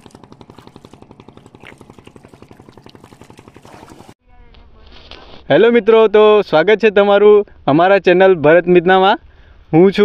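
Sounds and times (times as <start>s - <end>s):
small engine running: 0.0s - 4.2s.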